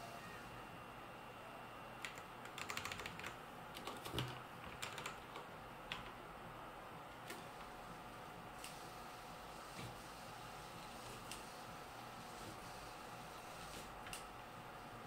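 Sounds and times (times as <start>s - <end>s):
typing on computer keyboard: 2.0s - 6.2s.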